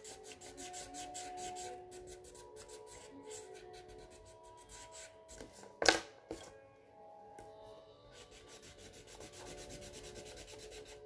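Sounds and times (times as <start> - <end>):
colouring tool scratching paper: 0.0 - 5.1, 8.2 - 11.0.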